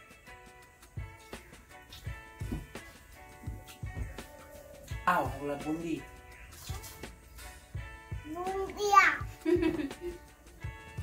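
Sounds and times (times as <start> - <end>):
background music with held notes: 0.0 - 11.0
low drum thumps: 2.2 - 4.3.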